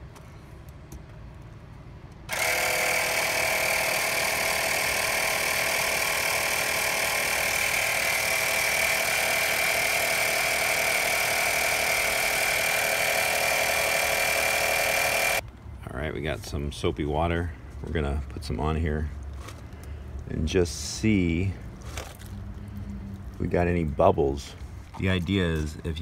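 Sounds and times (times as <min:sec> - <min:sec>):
air compressor whining: 0:02.3 - 0:15.4.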